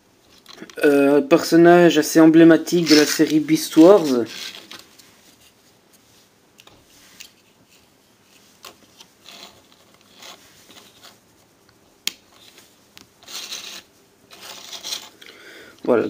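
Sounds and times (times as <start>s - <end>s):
plastic toy rubbing and scraping: 2.6s - 5.6s, 7.0s - 11.5s, 12.3s - 15.2s.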